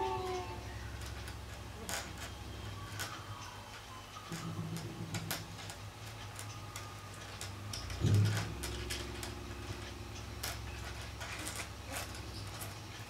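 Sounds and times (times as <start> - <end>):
steady low hum: 0.0 - 13.0
low bump: 7.9 - 12.6.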